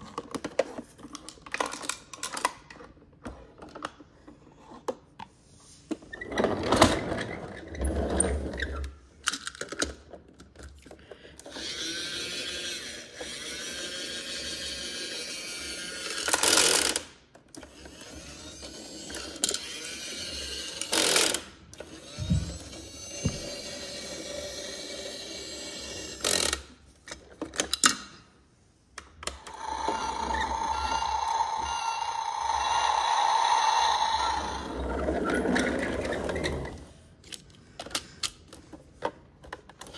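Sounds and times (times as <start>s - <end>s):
plastic parts clicking and knocking: 0.0s - 5.3s, 9.2s - 11.4s, 26.2s - 28.2s, 37.2s - 39.9s
toy motor whirring: 11.4s - 26.8s, 29.3s - 36.8s.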